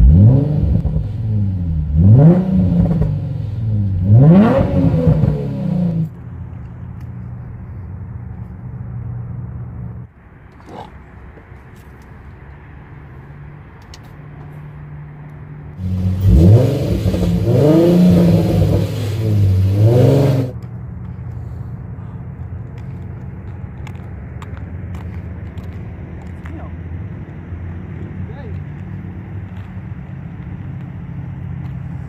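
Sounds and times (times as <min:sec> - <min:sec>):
car engine revving: 0:00.0 - 0:06.2, 0:15.8 - 0:20.6.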